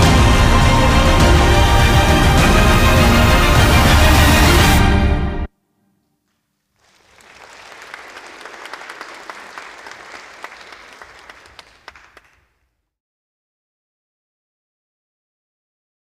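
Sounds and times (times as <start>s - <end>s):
dance music: 0.0s - 4.9s
audience applauding: 0.7s - 4.7s, 6.7s - 12.6s.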